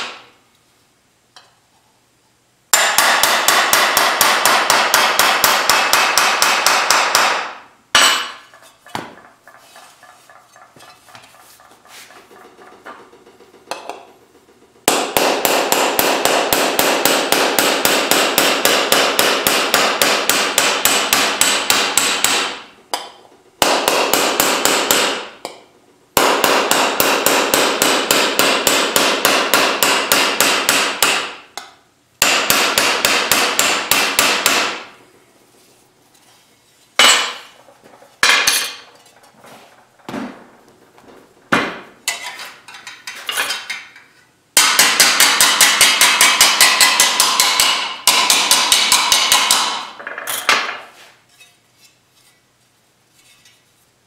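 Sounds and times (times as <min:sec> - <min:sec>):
hammer striking steel punch: 0:02.7 - 0:09.2, 0:14.9 - 0:25.6, 0:26.2 - 0:35.0, 0:37.0 - 0:37.6, 0:44.6 - 0:50.8.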